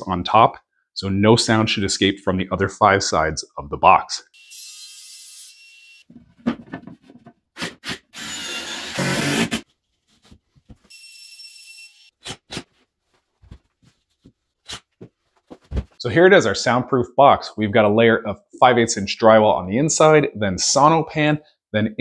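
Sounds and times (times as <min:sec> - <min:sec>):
power tool burst: 0:07.6 - 0:09.6.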